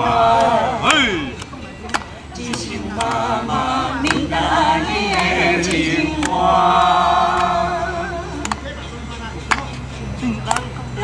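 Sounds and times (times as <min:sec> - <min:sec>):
group of adults singing: 0:00.0 - 0:11.0
sharp claps: 0:00.4 - 0:03.3, 0:05.0 - 0:07.6, 0:08.4 - 0:08.7, 0:09.4 - 0:09.8, 0:10.5 - 0:10.7.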